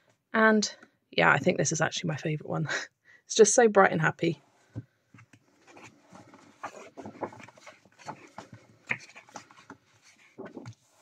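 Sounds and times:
paper pages rustling: 5.1 - 11.0.

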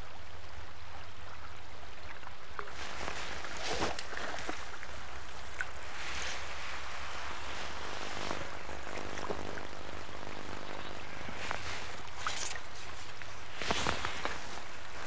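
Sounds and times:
steady low hum: 0.0 - 15.0
fish splashing in water: 2.6 - 10.8
droning engine: 6.4 - 12.6.

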